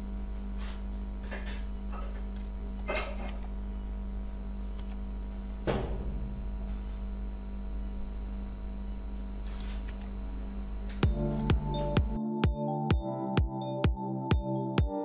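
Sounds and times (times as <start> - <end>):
electrical hum: 0.0 - 15.0
electronic music with sharp beats: 11.0 - 15.0.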